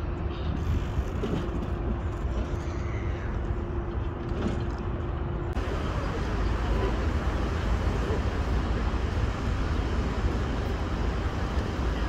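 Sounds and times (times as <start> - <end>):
steady droning hum: 0.0 - 12.0
low uneven rumble: 0.2 - 12.0.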